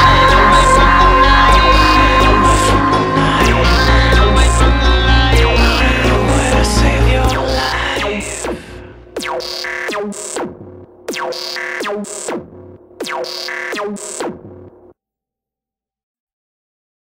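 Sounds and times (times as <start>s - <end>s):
synthesizer music with falling sweeps: 0.0s - 10.5s.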